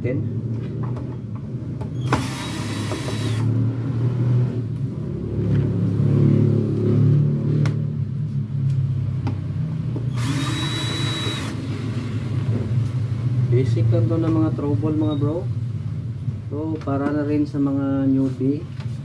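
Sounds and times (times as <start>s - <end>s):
cordless drill motor whine: 2.0s - 3.5s, 10.1s - 11.8s.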